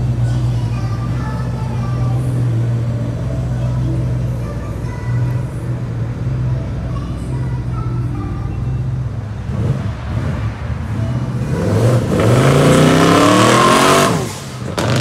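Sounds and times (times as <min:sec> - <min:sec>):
car accelerating past: 0:11.3 - 0:15.0.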